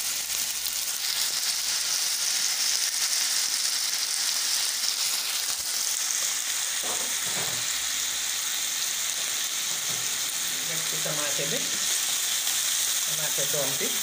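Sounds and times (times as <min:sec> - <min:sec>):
meat and onions sizzling in oil: 0:00.0 - 0:14.0.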